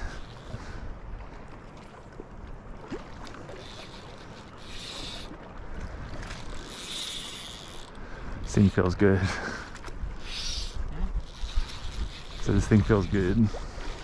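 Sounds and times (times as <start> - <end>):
small waves splashing: 0.0 - 14.0.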